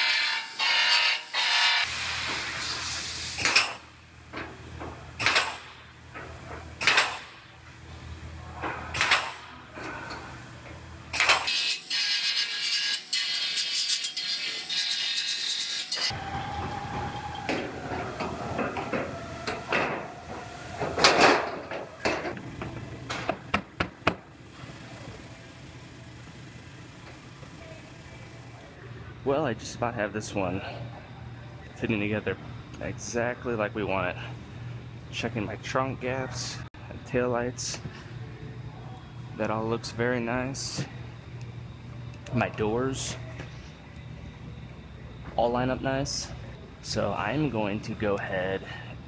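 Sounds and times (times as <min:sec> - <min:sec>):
pneumatic air punch punching metal: 0:00.0 - 0:03.9, 0:05.2 - 0:05.8, 0:06.8 - 0:07.4, 0:08.9 - 0:09.5, 0:11.1 - 0:14.0, 0:20.9 - 0:22.4
short hiss of air: 0:01.8 - 0:03.8
car body parts clattering: 0:20.8 - 0:24.2.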